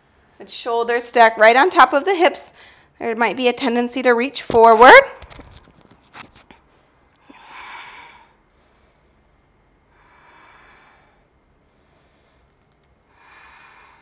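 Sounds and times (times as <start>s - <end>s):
woman breathing through the nose: 2.6s - 3.0s, 6.7s - 14.0s.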